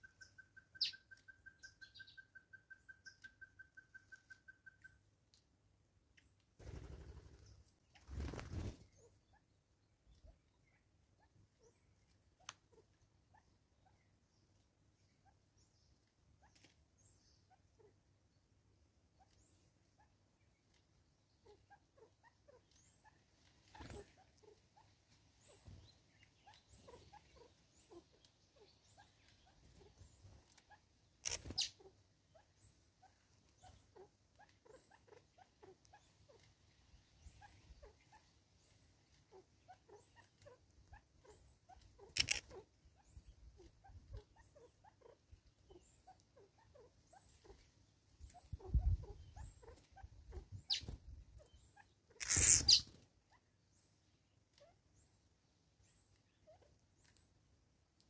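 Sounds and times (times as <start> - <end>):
small birds chirping: 0.0 - 58.0
high thin bird call: 52.2 - 52.9.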